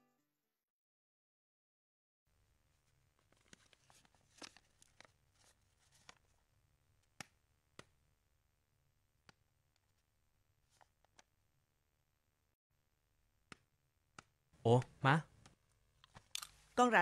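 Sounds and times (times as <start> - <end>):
paper rustling and clicks: 3.2 - 6.4.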